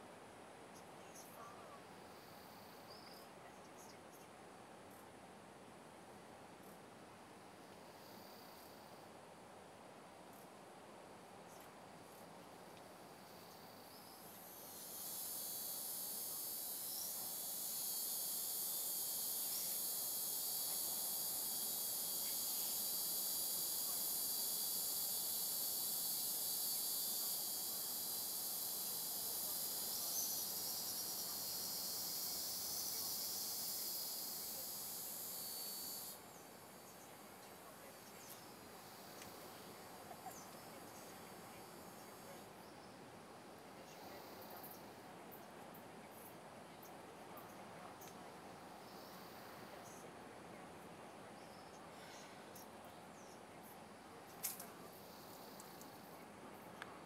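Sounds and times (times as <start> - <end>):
faint insect chirps: 0.0 - 57.0
high-pitched insect drone: 7.8 - 9.0, 13.0 - 42.8, 43.7 - 45.0, 47.4 - 50.0, 54.3 - 56.2.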